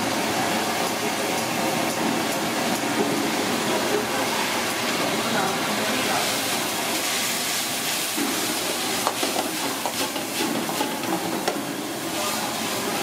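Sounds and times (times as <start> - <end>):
utensil knocking against pan: 9.0 - 11.6.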